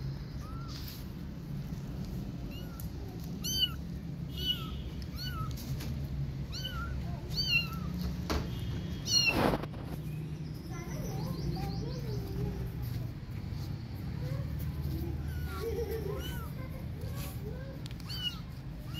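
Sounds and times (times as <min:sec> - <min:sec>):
kitten meowing: 0:00.4 - 0:01.0, 0:02.5 - 0:05.7, 0:06.5 - 0:08.0, 0:09.0 - 0:09.7, 0:15.2 - 0:16.6, 0:17.8 - 0:18.9.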